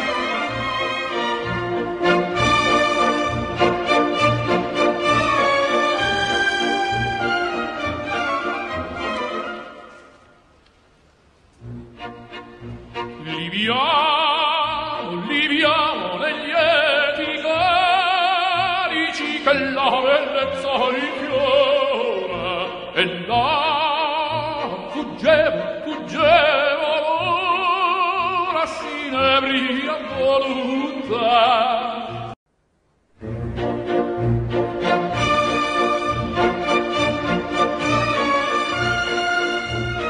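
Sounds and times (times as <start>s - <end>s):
orchestral accompaniment: 0.0s - 10.3s, 11.5s - 30.9s, 33.2s - 40.0s
operatic voice singing: 13.1s - 32.4s.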